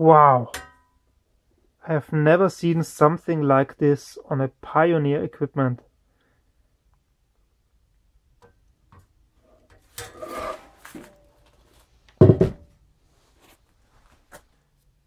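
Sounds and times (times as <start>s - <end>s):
metallic clunk: 0.5s - 0.9s
metal cover scraping and rattling: 9.4s - 11.4s.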